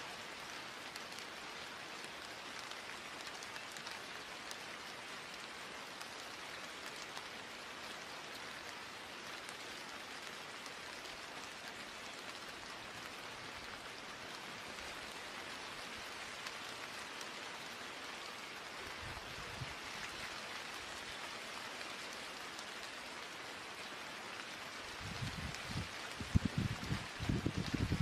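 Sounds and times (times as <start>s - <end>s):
steady rain falling: 0.0s - 28.0s.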